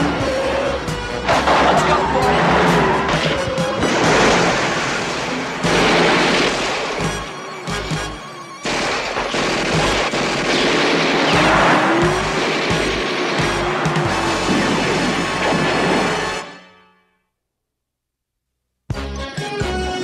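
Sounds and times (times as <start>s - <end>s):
dramatic score music: 0.0s - 17.0s
booms: 1.2s - 8.1s, 8.7s - 16.4s
gunfire: 1.3s - 8.0s, 8.6s - 16.5s.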